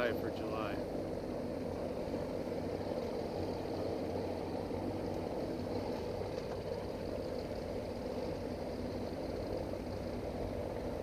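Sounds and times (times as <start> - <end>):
motorboat engine droning: 0.0 - 11.0.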